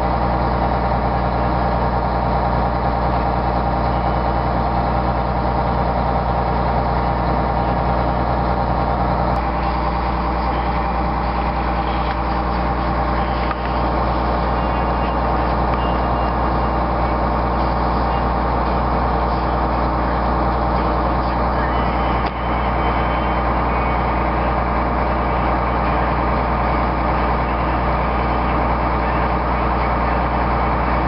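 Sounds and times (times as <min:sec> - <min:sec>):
diesel engine running: 0:00.0 - 0:31.0.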